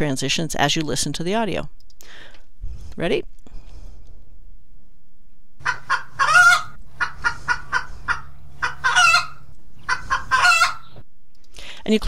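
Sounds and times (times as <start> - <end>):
chicken clucking and squawking: 5.6 - 11.0.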